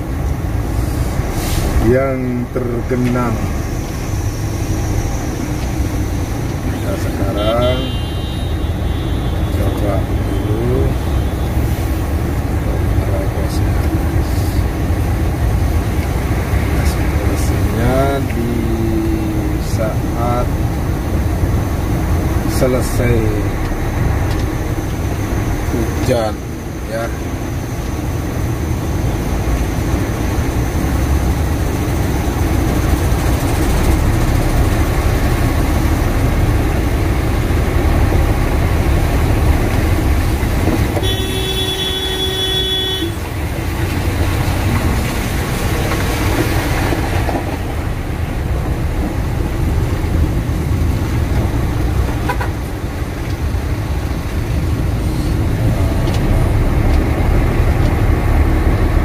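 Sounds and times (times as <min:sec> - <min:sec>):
truck engine and road noise: 0:00.0 - 0:59.0
vehicle horn: 0:07.4 - 0:11.5, 0:41.0 - 0:43.2, 0:52.2 - 0:52.6.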